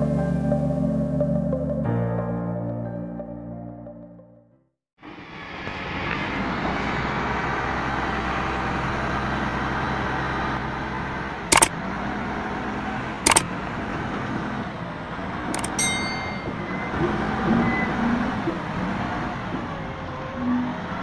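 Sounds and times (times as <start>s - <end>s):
diesel forklift running: 5.8s - 21.0s.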